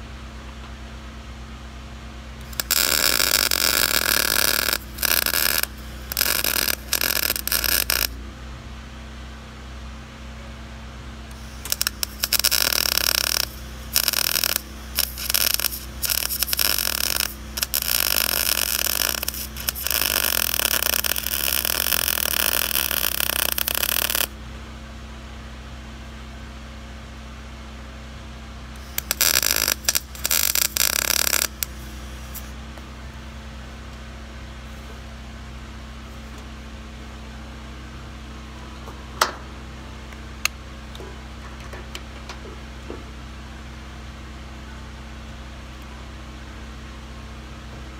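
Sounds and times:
steady hum: 0.0s - 47.9s
welder crackling: 2.4s - 8.2s, 11.3s - 24.4s, 28.7s - 32.9s.

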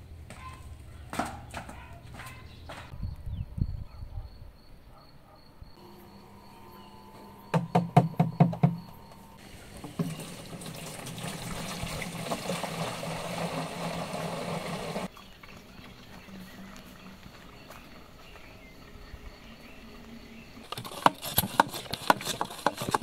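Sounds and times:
water pouring into watering can: 9.4s - 16.1s.

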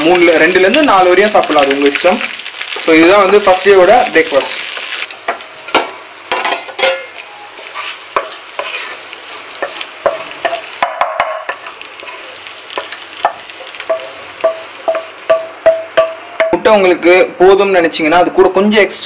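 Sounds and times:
eggs sizzling: 0.0s - 16.5s
spatula scraping frying pan: 6.5s - 10.8s.

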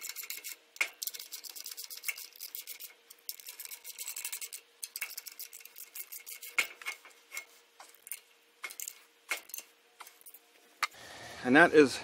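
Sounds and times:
hand ratchet clicking: 0.0s - 7.4s.

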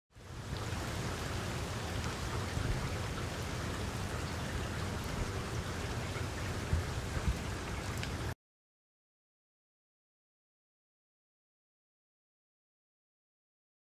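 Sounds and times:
heavy rain falling: 0.2s - 8.4s
raindrops ticking: 0.4s - 8.4s.

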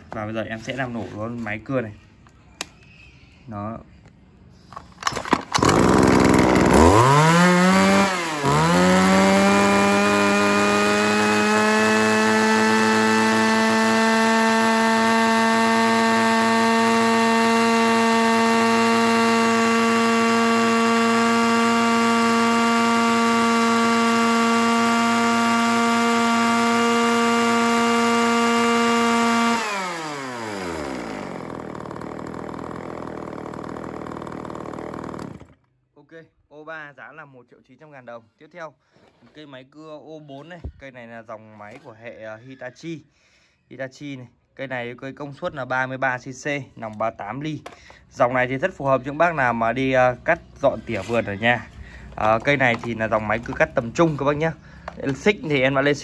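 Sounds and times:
chainsaw starting and revving: 5.2s - 35.7s.

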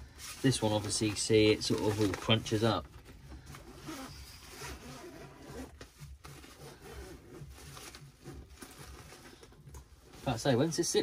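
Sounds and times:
fabric bag rustling: 0.0s - 11.0s
zip rasping open: 3.5s - 9.4s.

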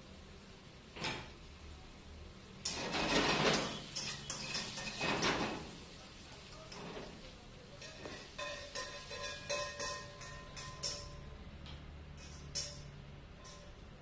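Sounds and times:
vegetables sizzling in a wok: 0.0s - 14.0s
metal spatula scraping pan: 2.7s - 5.8s, 7.8s - 11.3s.

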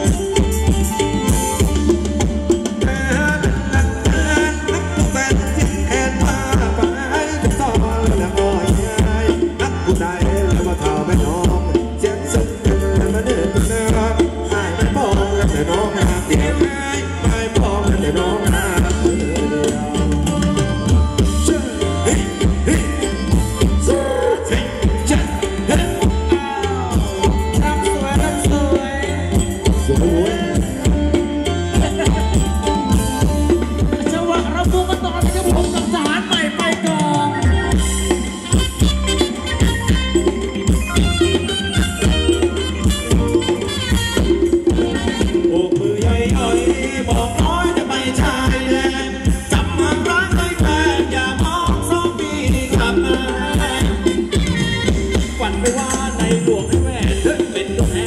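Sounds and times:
live band dance music: 0.0s - 58.0s
steady drum beat: 0.0s - 58.0s.

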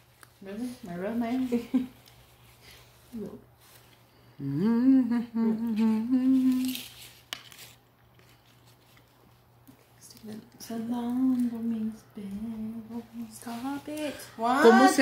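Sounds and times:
woman humming a tune: 4.3s - 6.8s.

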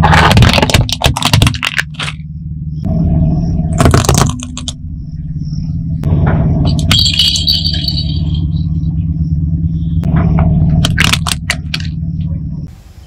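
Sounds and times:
balloons popping under tyre: 0.0s - 2.2s, 3.8s - 4.8s
car engine running: 0.0s - 12.7s.

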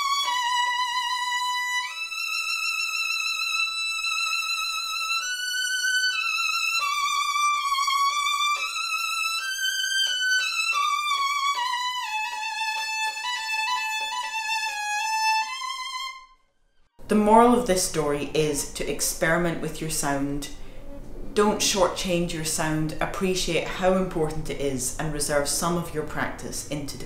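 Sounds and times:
solo violin melody: 0.0s - 16.4s.

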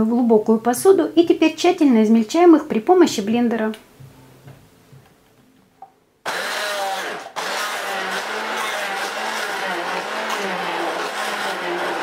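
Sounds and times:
immersion blender chopping: 6.2s - 12.0s.

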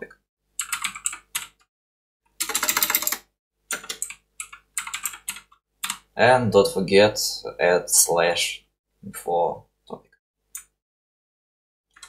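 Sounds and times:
computer keyboard typing: 0.6s - 1.7s, 2.4s - 6.0s.

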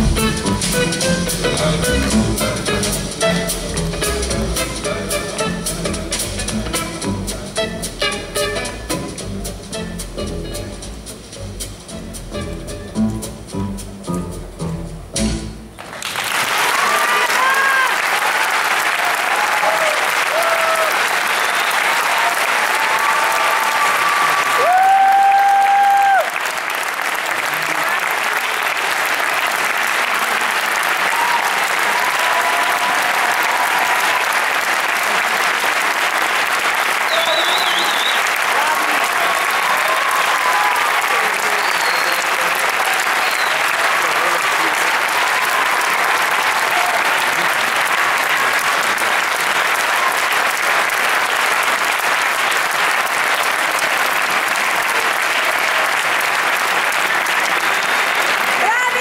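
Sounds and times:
audience applauding: 15.8s - 59.0s.

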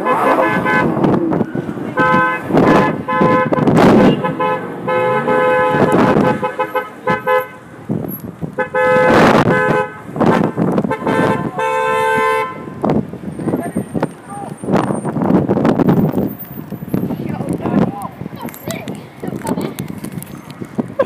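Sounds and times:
car horn honking: 0.0s - 1.1s, 1.8s - 7.7s, 8.6s - 12.8s
loud rushes of noise: 0.0s - 11.6s.

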